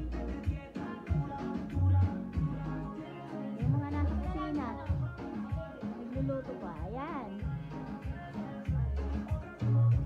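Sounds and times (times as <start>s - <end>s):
music with heavy bass line: 0.0s - 10.0s.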